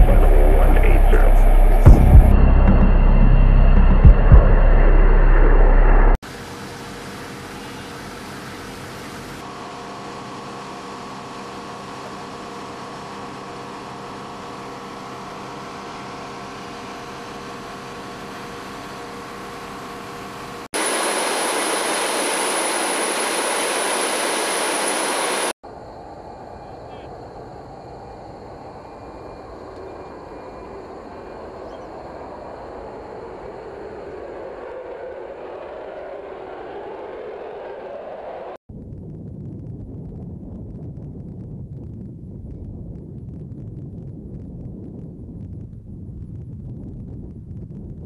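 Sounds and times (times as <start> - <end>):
steady jet rumble: 0.0 - 9.5, 20.7 - 48.0
jet aircraft humming: 0.0 - 25.6, 26.3 - 38.6
jet hiss with high whine: 20.8 - 25.5.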